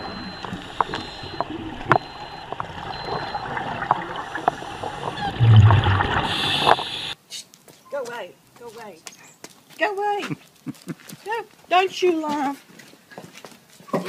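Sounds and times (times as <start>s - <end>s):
bubbles gurgling: 0.0s - 7.2s
diver breathing through regulator: 4.1s - 7.2s
hiss: 6.2s - 7.2s.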